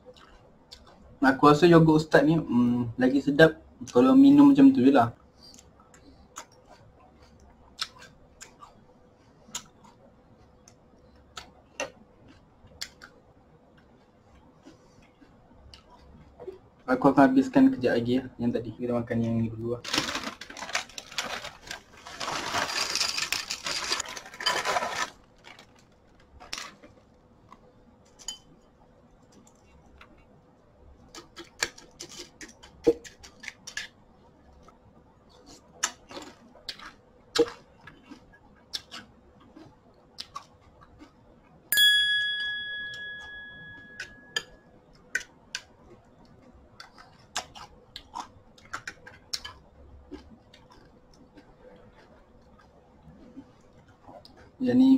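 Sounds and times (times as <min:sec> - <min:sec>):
cereal poured into bowl: 0:22.0 - 0:25.2
bright ding: 0:41.7 - 0:44.5
metal spoon clinking bowl: 0:41.8 - 0:44.6.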